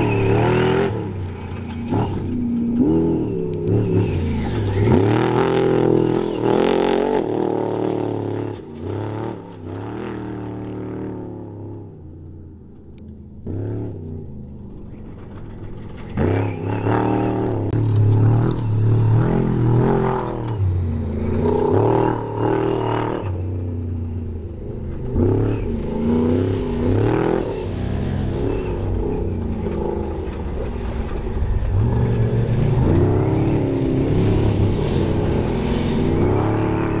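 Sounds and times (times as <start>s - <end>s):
racing engine revving hard: 31.8s - 37.0s.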